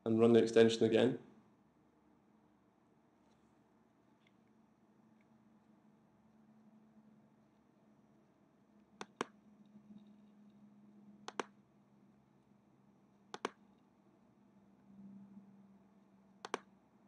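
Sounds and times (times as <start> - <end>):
faint steady hum: 0.0 - 17.0
mouse button clicks: 9.0 - 9.4, 11.3 - 11.6, 13.3 - 13.6, 16.4 - 16.7.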